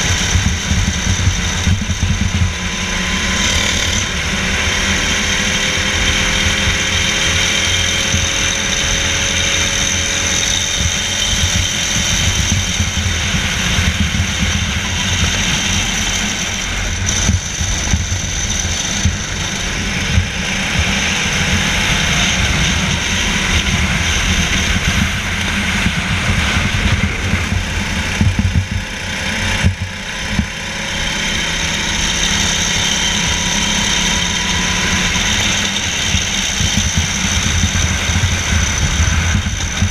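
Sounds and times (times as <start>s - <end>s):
go-kart engine running: 0.0s - 39.9s.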